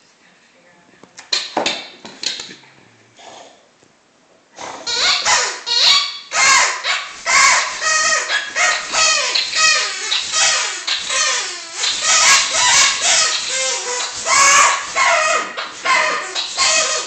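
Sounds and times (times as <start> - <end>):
rubber squeaky toy squeaking: 4.8 - 17.0.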